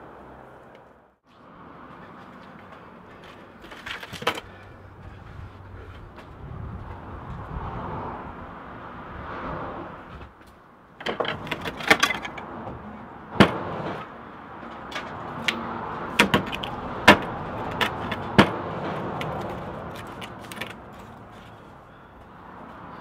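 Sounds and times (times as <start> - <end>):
metal parts clattering on a workbench: 11.0 - 12.4.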